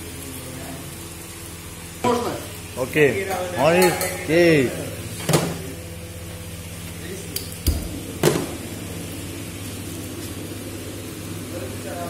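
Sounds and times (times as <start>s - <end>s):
metal cookware clanking: 3.7s - 4.3s
steady low hum: 4.2s - 12.0s.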